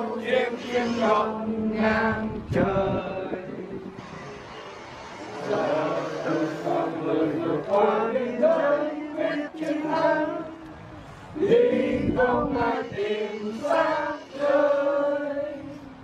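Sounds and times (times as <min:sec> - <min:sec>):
group of voices chanting: 0:05.2 - 0:10.6.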